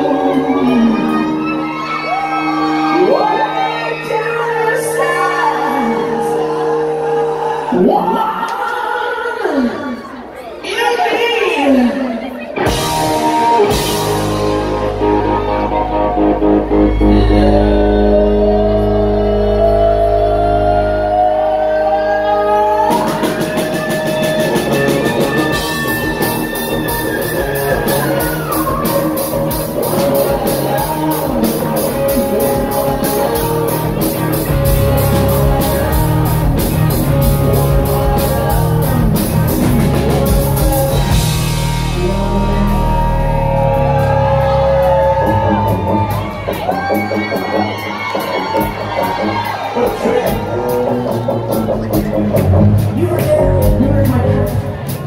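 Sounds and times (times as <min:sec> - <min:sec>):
electric guitar: 0:00.0 - 0:09.0, 0:11.0 - 0:55.0
drums keeping a steady beat: 0:12.5 - 0:17.2, 0:22.7 - 0:55.0
person singing: 0:12.6 - 0:55.0.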